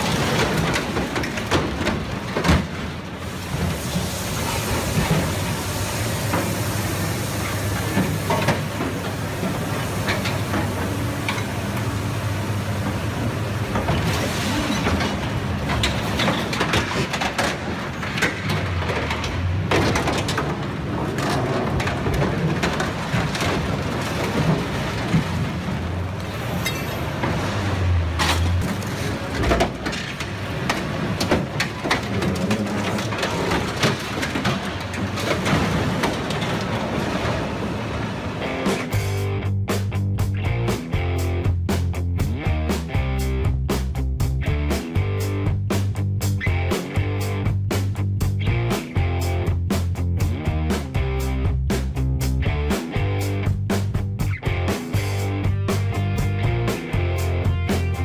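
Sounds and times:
sheet metal cracking and crunching: 0:00.0 - 0:03.8, 0:13.0 - 0:39.1
excavator engine under load: 0:00.0 - 0:39.4.

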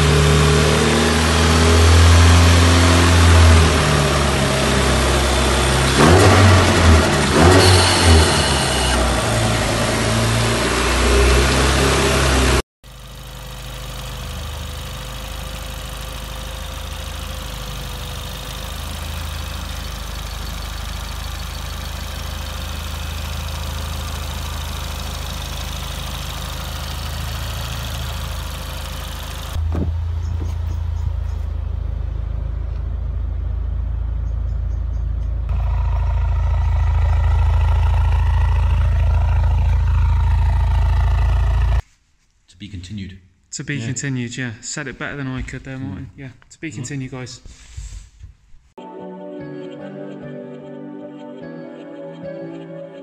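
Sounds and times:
thin engine whine: 0:00.0 - 0:41.8
car engine idling: 0:12.3 - 0:41.8.

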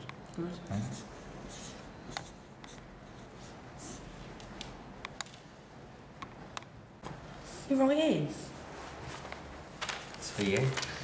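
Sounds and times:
pen scratching on paper: 0:00.8 - 0:04.0.

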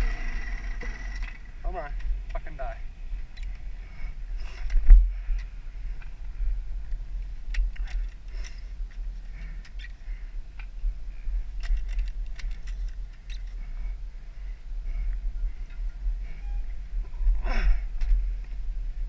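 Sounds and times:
wind buffeting microphone: 0:00.0 - 0:19.0
faint squeaks: 0:12.4 - 0:17.9.

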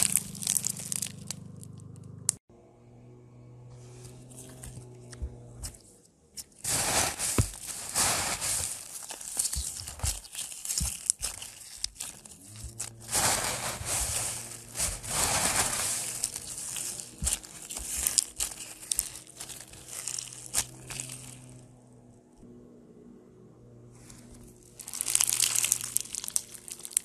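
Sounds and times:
foam beads crackling in slime: 0:00.0 - 0:01.8, 0:06.6 - 0:21.6, 0:24.7 - 0:27.0.

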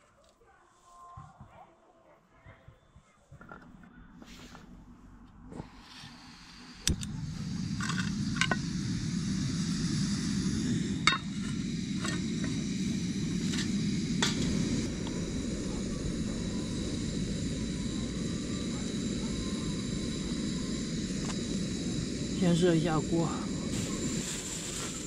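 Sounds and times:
burner flame rushing: 0:05.6 - 0:25.0
stove igniter click: 0:06.8 - 0:08.7.

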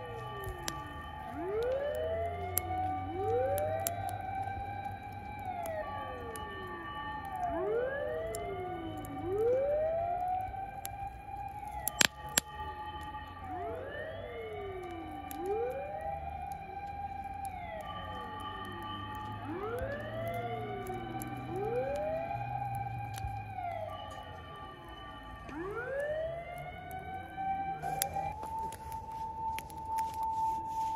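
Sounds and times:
emergency sirens wailing: 0:00.0 - 0:30.9
sharp pops: 0:11.8 - 0:12.6.

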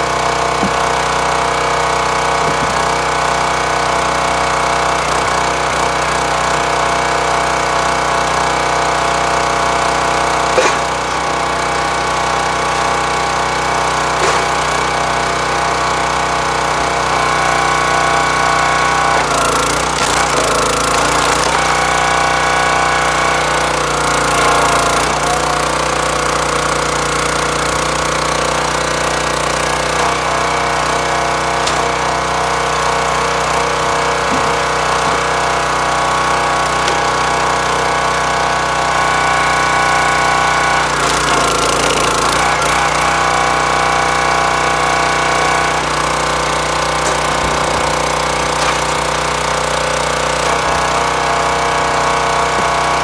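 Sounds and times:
log splitter engine running: 0:00.0 - 0:53.0
wood knocking against steel: 0:14.2 - 0:14.8
wood cracking and tearing: 0:19.1 - 0:25.8, 0:45.8 - 0:50.9.

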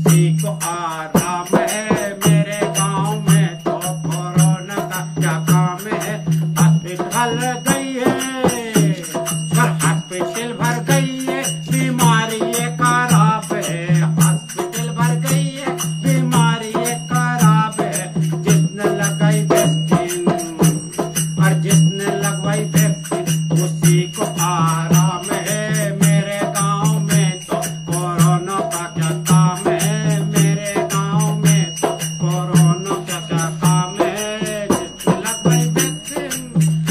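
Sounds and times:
man singing folk song: 0:00.0 - 0:20.8, 0:21.4 - 0:36.7
hand drum beat: 0:00.0 - 0:36.9
jingling hand cymbals: 0:00.0 - 0:36.9.

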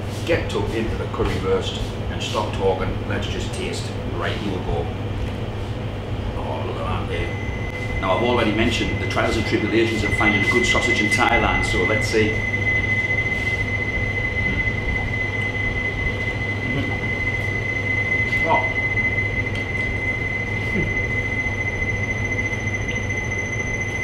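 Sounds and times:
low machine hum: 0:00.0 - 0:24.0
high-pitched whine: 0:06.0 - 0:24.0.

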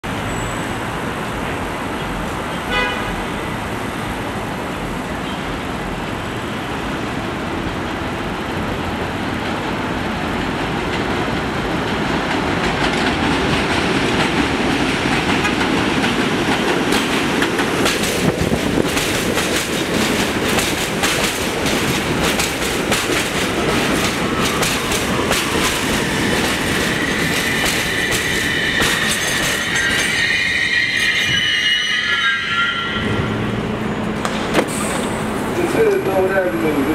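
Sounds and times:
subway train rumble: 0:00.0 - 0:36.9
high brake squeal: 0:00.2 - 0:00.8, 0:27.0 - 0:33.4.

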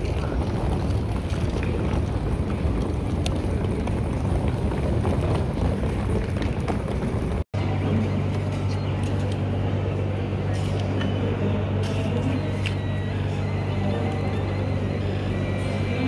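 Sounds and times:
suitcase wheels rolling on concrete: 0:00.0 - 0:07.5.

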